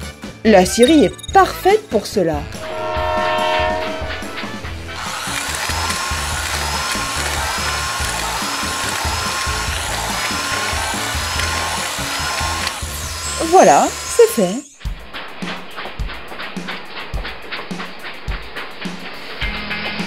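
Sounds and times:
power saw cutting wood: 2.6 - 14.6.

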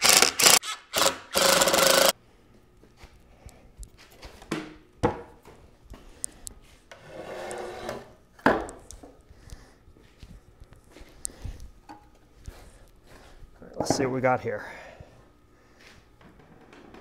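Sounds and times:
wood scraping: 6.9 - 8.1.

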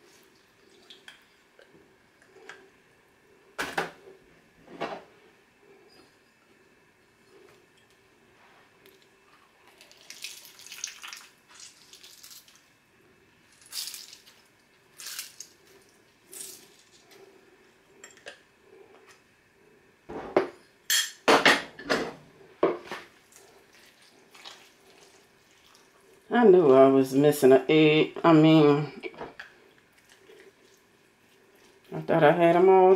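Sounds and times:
lemon juice squirting and dripping: 9.6 - 12.6.

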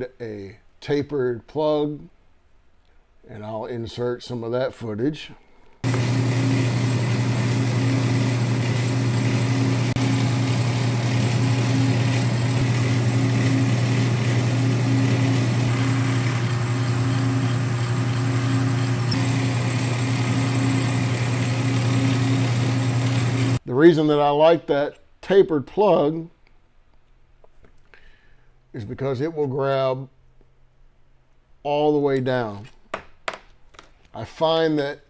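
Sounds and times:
metal lathe motor humming: 5.8 - 23.6.

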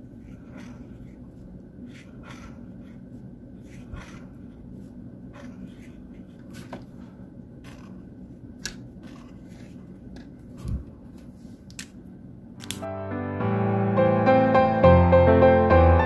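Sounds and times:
low steady hum: 0.0 - 12.9
brush pen stroking paper: 0.1 - 8.0, 9.0 - 9.9.

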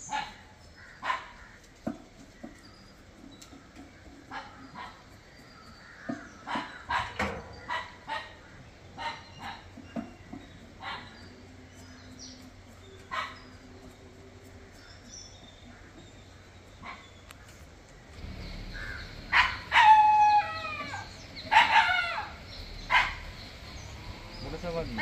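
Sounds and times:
birds chirping faintly: 0.0 - 25.0
drawn-out falling call: 18.2 - 24.4
dog barking: 19.3 - 20.0, 21.5 - 22.2, 22.9 - 23.2.

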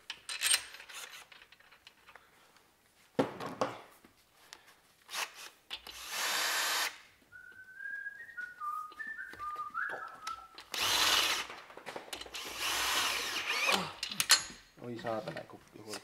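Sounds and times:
cordless drill running: 5.1 - 7.0, 10.7 - 11.5, 12.3 - 13.8
person whistling short notes: 7.3 - 10.6.

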